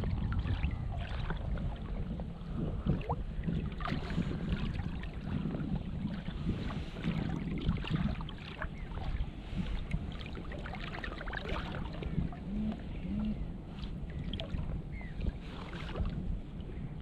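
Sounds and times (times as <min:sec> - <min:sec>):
water lapping and splashing: 0:00.0 - 0:17.0
wind rumbling on microphone: 0:00.0 - 0:17.0.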